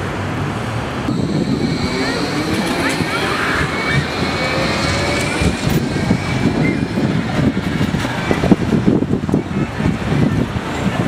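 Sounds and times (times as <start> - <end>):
wind buffeting microphone: 0.8 - 11.0
tram electric whine: 1.0 - 11.0.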